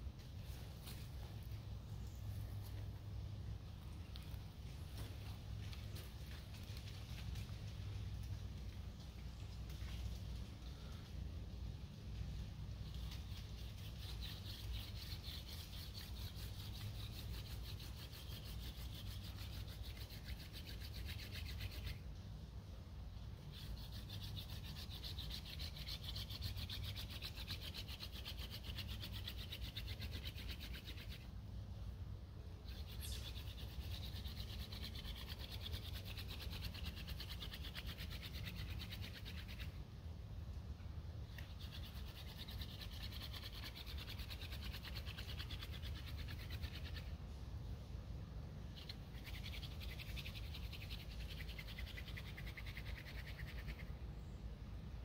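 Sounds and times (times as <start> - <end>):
scratchy wood-on-wood rubbing: 12.9 - 22.0, 23.5 - 31.2.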